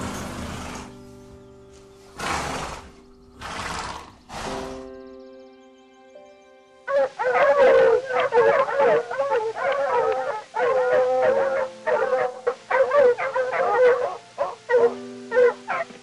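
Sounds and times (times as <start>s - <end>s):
fox yips and howling cries: 6.9s - 16.0s.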